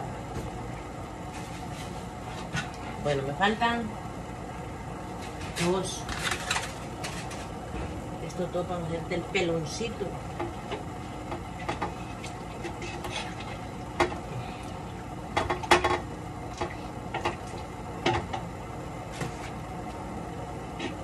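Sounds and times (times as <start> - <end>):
steady low hum: 0.0 - 21.0
utensils and containers clattering: 5.3 - 7.5.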